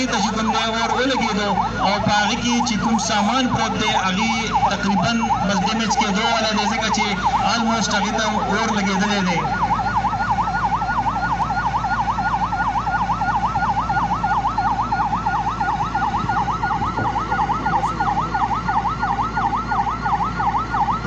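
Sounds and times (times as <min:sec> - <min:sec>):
electronic siren yelping: 0:00.0 - 0:21.0.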